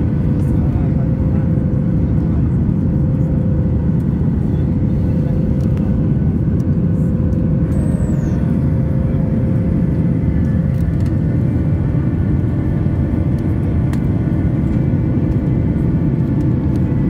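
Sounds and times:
airplane cabin engine rumble: 0.0 - 17.0.

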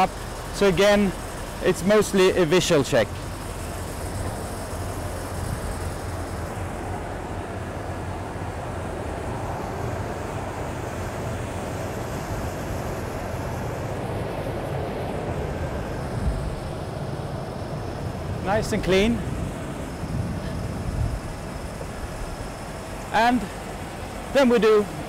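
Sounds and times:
aircraft and ground equipment rumble: 0.0 - 25.0
wind on microphone: 15.5 - 17.0, 18.2 - 22.8.

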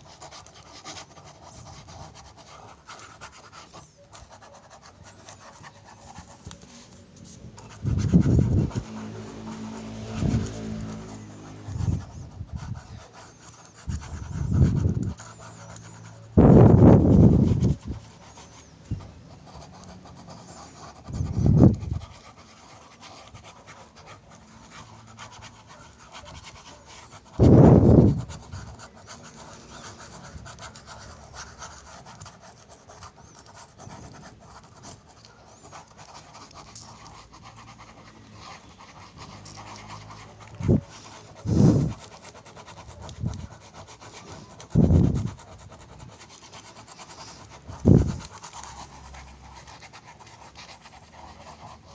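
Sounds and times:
pen scribbling on paper: 0.0 - 51.9
loud muffled puffs: 40.6 - 42.0.

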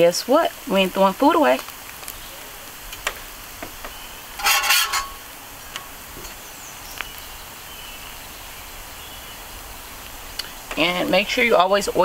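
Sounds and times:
faint steady hiss: 0.0 - 12.0
metal spatula scraping griddle: 4.4 - 5.2
light ticks: 10.0 - 10.8.

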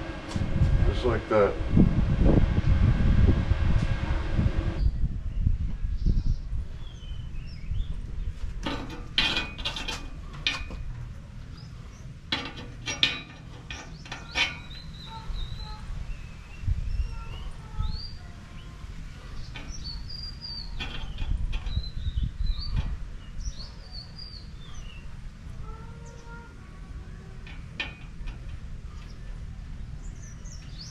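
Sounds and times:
birds chirping: 9.5 - 30.9
steel clinking on metal bars: 12.3 - 15.4, 19.4 - 23.0.

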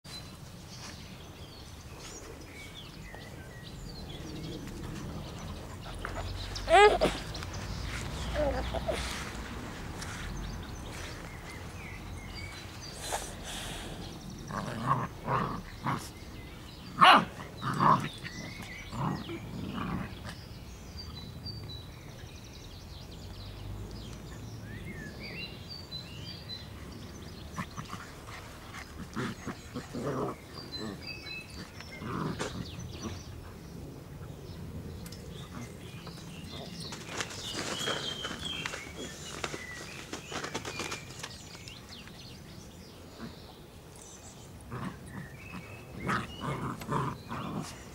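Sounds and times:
puppies growling and barking: 14.4 - 20.4, 27.4 - 33.4, 44.6 - 47.9.

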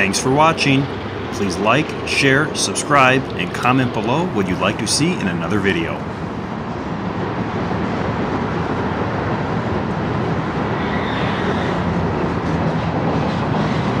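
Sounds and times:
train wheels rolling on rail: 0.0 - 14.0
faint high squeal: 10.8 - 11.8.

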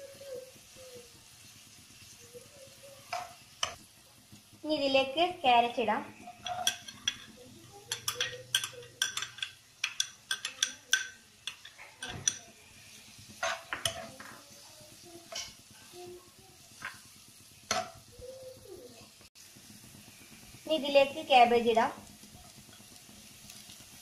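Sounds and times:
onions frying: 0.0 - 24.0
steel spoon clinking against bowl: 6.3 - 12.5.

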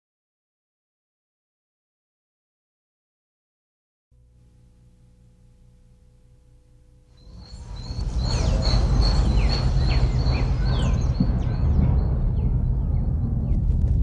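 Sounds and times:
faint low hum: 4.2 - 14.0
low rumble: 4.2 - 14.0
pulsing high-pitched trill: 5.8 - 13.4
birds chirping: 7.1 - 13.6.

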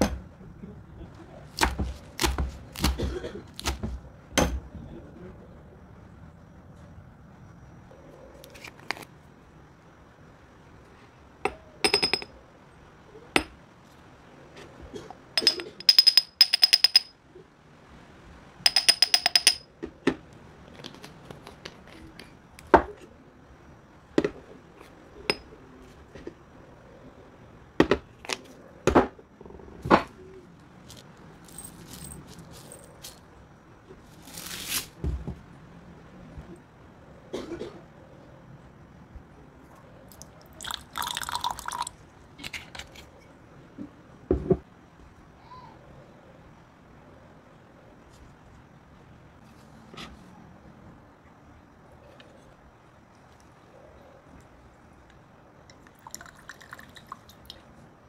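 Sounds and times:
glass jar clinking: 11.5 - 12.4, 15.4 - 17.2, 18.7 - 19.7, 25.3 - 25.5.

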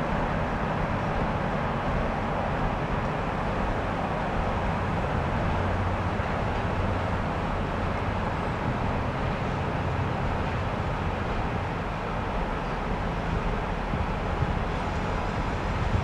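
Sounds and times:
diesel locomotive engine drone: 0.0 - 16.0.

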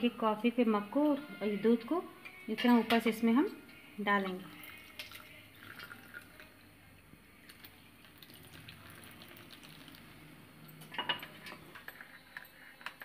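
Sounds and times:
milk pouring into mug: 4.4 - 6.7, 7.4 - 10.2.

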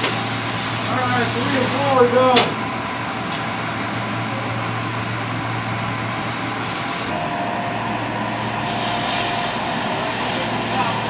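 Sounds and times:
arc welding crackling hiss: 0.0 - 2.4, 6.1 - 7.2, 8.3 - 11.0.

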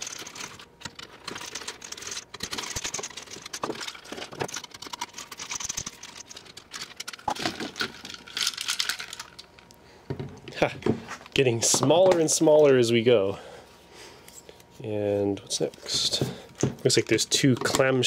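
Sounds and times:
small parts clicking and rattling: 0.0 - 9.8.

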